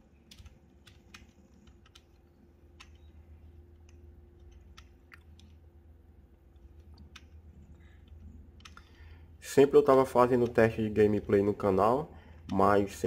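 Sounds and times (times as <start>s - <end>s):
keyboard and mouse clicks: 0.0s - 5.6s, 6.4s - 9.2s, 10.1s - 11.6s
low steady hum: 0.0s - 13.0s.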